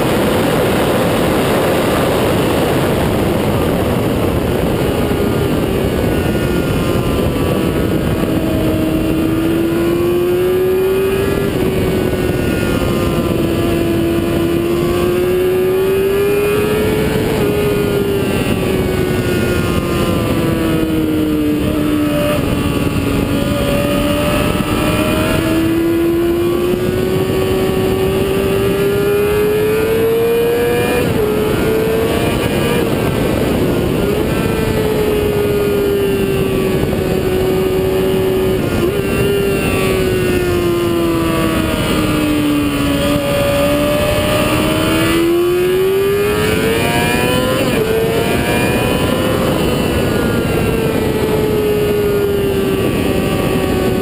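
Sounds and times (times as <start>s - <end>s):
motorcycle engine at speed: 0.0s - 54.0s
wind rush on microphone: 0.0s - 54.0s.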